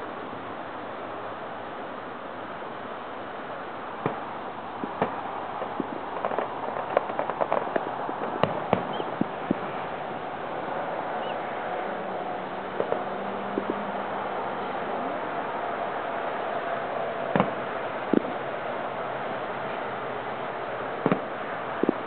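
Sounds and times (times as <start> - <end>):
steady background hiss: 0.0 - 22.0
distant fireworks popping: 4.0 - 11.4, 12.7 - 13.8, 17.2 - 18.4, 21.0 - 22.0.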